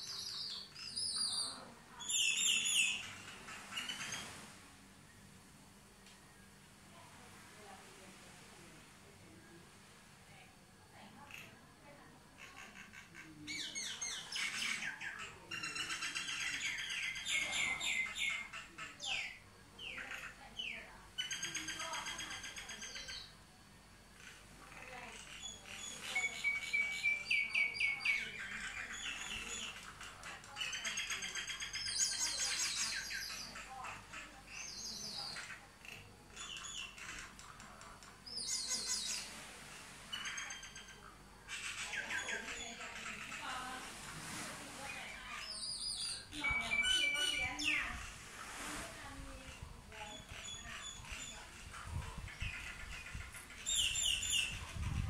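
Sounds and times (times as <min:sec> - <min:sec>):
mynas calling: 0:12.4 - 0:23.4, 0:24.2 - 0:44.1, 0:44.8 - 0:48.5.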